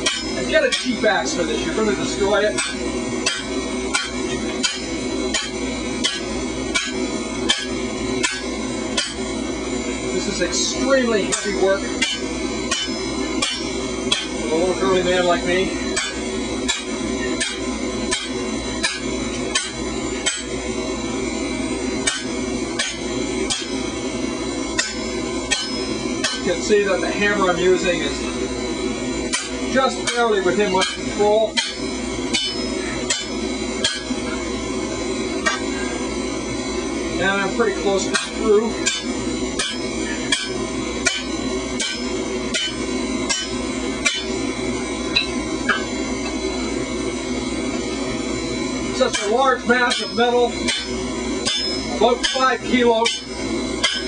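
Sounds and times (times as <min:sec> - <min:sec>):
hammer striking metal: 0:00.0 - 0:01.0, 0:02.6 - 0:09.3, 0:11.3 - 0:14.4, 0:15.9 - 0:20.5, 0:22.0 - 0:23.9, 0:24.7 - 0:26.6, 0:29.3 - 0:34.2, 0:35.4 - 0:35.9, 0:38.1 - 0:44.4, 0:49.1 - 0:54.0
steady low hum: 0:00.0 - 0:54.0.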